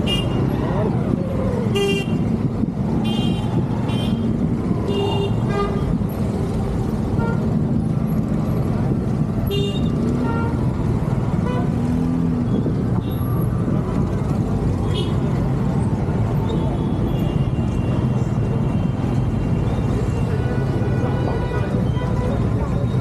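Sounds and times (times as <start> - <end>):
scooter engine and road rumble: 0.0 - 23.0.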